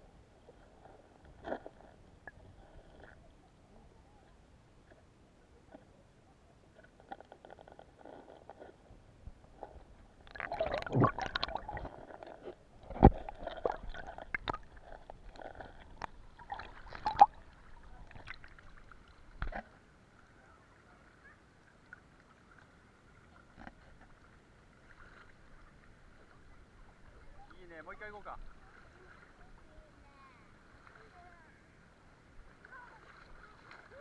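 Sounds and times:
water movement: 0.0s - 34.0s
muffled knocks underwater: 10.3s - 17.4s, 19.4s - 19.7s.

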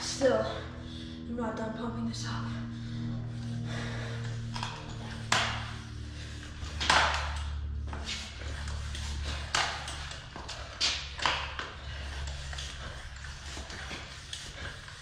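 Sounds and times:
hand pump strokes: 3.2s - 15.0s.

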